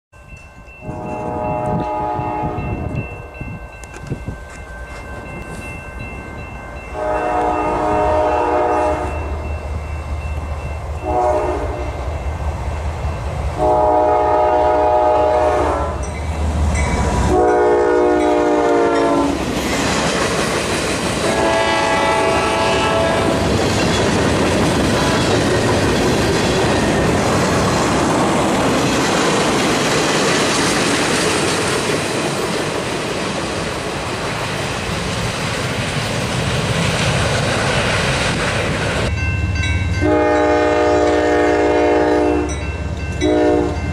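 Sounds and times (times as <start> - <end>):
clickety-clack of wheels on rails: 0.3 - 6.5, 18.2 - 40.0
locomotive air horn blasts: 0.8 - 2.9, 6.9 - 9.4, 11.0 - 12.0, 13.6 - 16.1, 17.2 - 19.4, 21.2 - 23.5, 40.0 - 42.6, 43.2 - 43.9
freight cars rumbling: 19.4 - 40.0.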